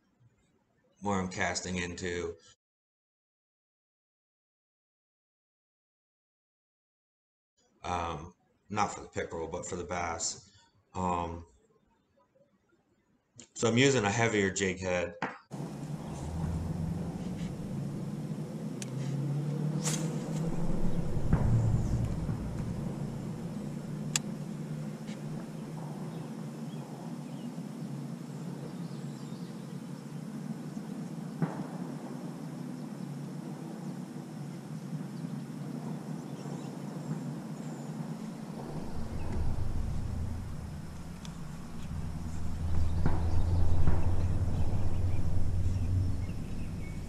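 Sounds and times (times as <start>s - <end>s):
low rumbling: 15.5s - 27.8s, 38.4s - 47.0s
sharp clicks: 24.1s - 24.3s.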